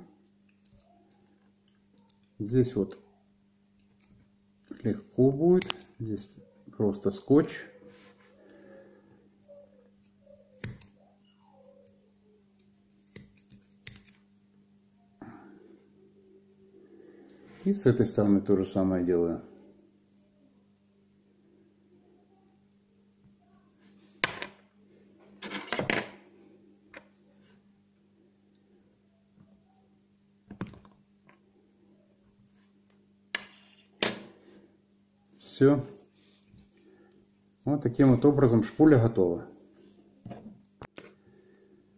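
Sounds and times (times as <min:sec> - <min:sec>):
small objects tapping on wooden table: 0:24.2 - 0:24.6.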